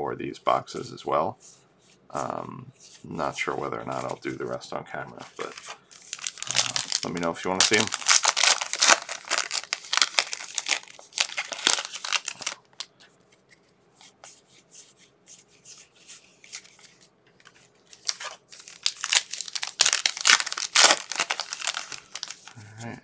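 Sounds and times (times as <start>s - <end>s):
wrappers crinkling and tearing: 5.2s - 12.9s, 16.5s - 22.6s.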